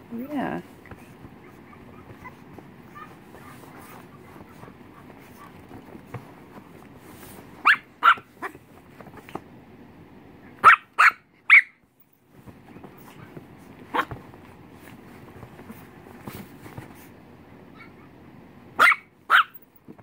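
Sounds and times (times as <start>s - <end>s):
puppy barking: 1.4s - 5.6s, 7.6s - 8.6s, 10.6s - 11.8s, 13.9s - 14.1s, 17.7s - 18.1s, 18.8s - 19.6s.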